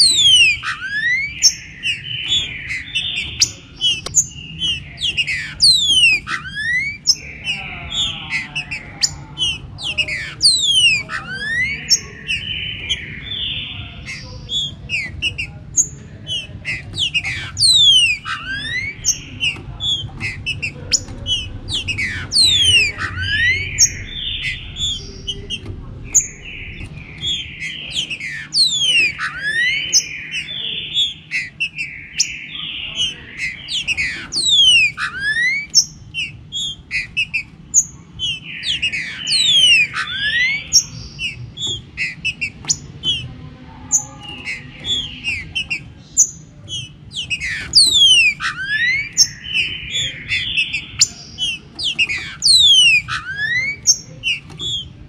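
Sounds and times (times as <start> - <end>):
birds singing whistled phrases: 0.0 - 55.0.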